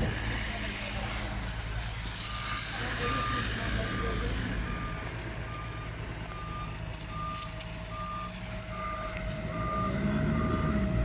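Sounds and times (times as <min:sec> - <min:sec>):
truck engine hum: 0:00.0 - 0:11.0
reversing alarm beeps: 0:02.2 - 0:11.0.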